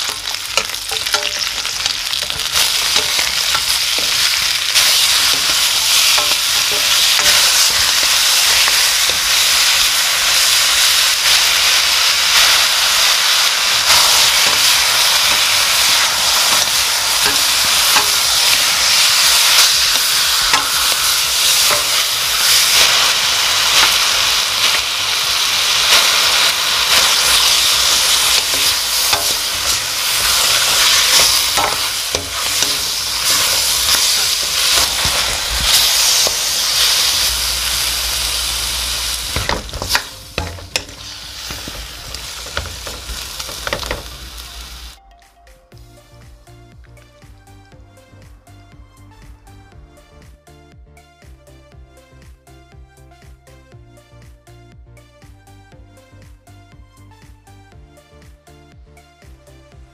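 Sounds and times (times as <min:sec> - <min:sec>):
vegetables sizzling in wok: 0:00.0 - 0:45.0.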